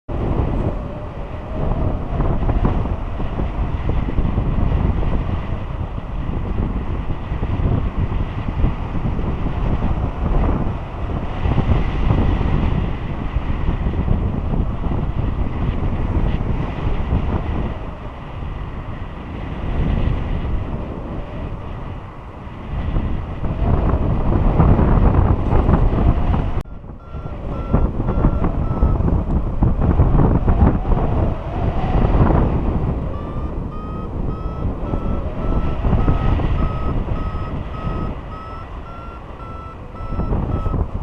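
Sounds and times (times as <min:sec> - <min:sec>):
wind buffeting microphone: 0:00.1 - 0:41.0
variometer short beeps: 0:26.7 - 0:29.1, 0:33.1 - 0:40.9.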